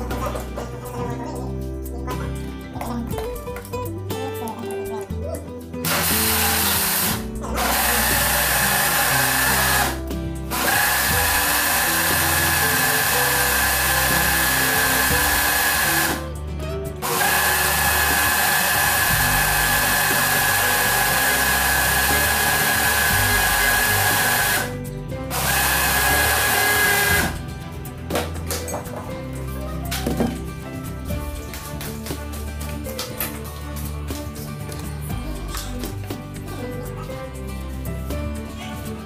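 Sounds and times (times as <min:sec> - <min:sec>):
blender motor whine: 0:05.8 - 0:16.3, 0:17.0 - 0:27.5.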